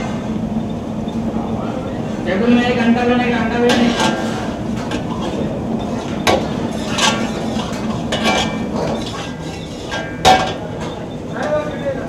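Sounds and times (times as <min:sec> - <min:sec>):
steady background noise: 0:00.0 - 0:12.0
metal ladle scraping iron pot: 0:03.7 - 0:10.6.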